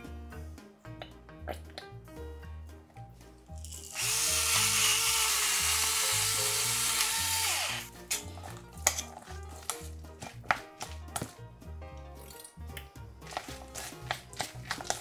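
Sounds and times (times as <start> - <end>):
electric pepper mill grinding: 3.6 - 7.9
spoon clinking on metal bowl: 8.1 - 10.3.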